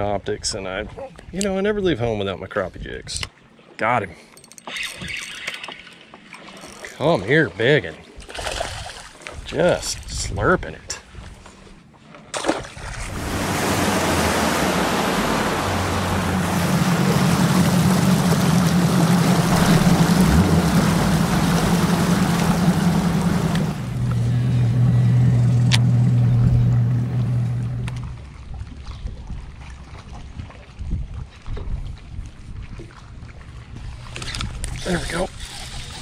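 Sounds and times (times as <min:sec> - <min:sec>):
rush of wind and water: 0:08.0 - 0:11.6, 0:12.4 - 0:24.6, 0:27.1 - 0:36.0
outboard motor humming: 0:13.0 - 0:28.8, 0:33.6 - 0:36.0.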